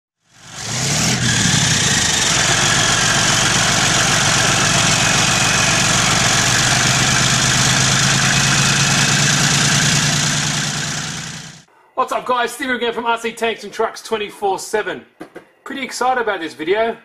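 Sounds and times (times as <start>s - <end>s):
simulated diesel engine idling: 0.3s - 11.7s.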